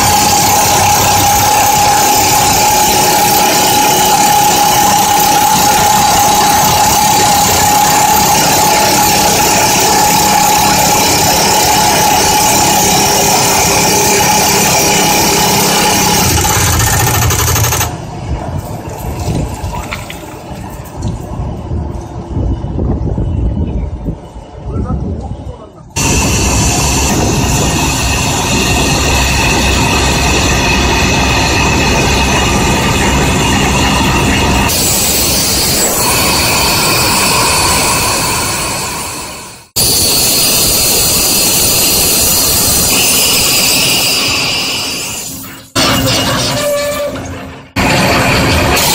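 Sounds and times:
hydraulic rock drill hammering: 0:00.0 - 0:18.0.

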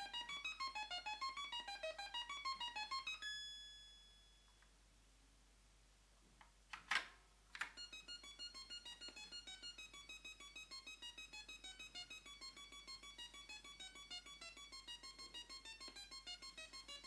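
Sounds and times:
chiptune organ-like tune: 0:00.0 - 0:04.1, 0:07.6 - 0:17.0.

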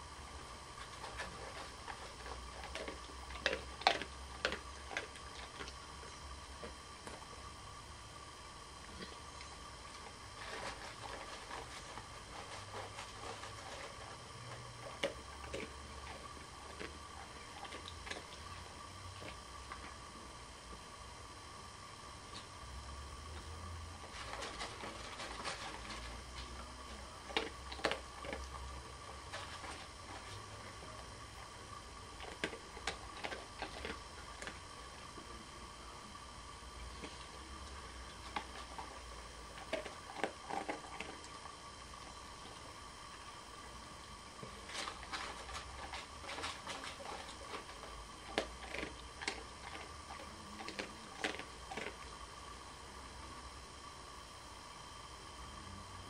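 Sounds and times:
steady low hum: 0:00.0 - 0:56.0
dog chewing or licking: 0:00.5 - 0:07.3, 0:08.8 - 0:20.1, 0:24.0 - 0:35.3, 0:36.9 - 0:43.5, 0:44.4 - 0:52.2.

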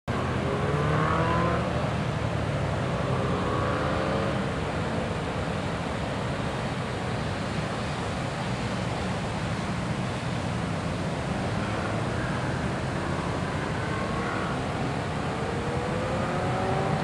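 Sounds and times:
distant vehicle engines accelerating: 0:11.7 - 0:17.0.

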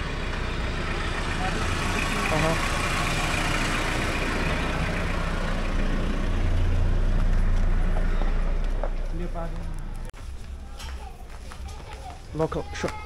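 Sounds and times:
truck engine idling: 0:00.0 - 0:10.1.

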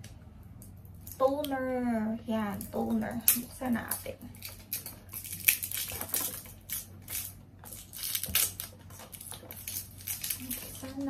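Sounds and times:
plastic bottle crackling and clicking: 0:03.3 - 0:11.0.

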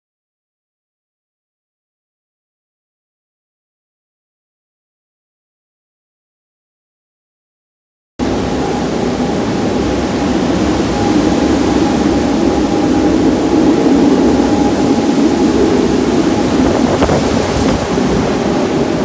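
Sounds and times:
faint steady high note: 0:08.2 - 0:19.0
wind roaring through trees: 0:08.2 - 0:19.0.

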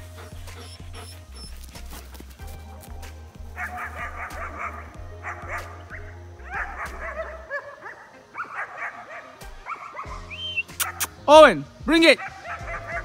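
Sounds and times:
background music with bass line: 0:00.0 - 0:07.5, 0:09.4 - 0:13.0
dog barking in high yips: 0:03.6 - 0:05.7, 0:06.5 - 0:11.2, 0:12.2 - 0:13.0.

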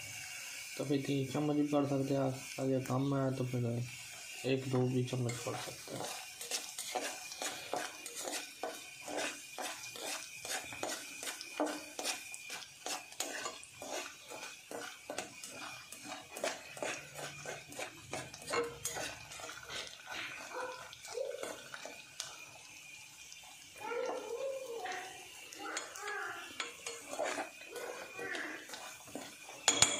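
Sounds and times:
seeds sizzling in oil: 0:00.0 - 0:29.9
metal spoon scraping saucepan: 0:03.0 - 0:22.0, 0:25.7 - 0:29.9.

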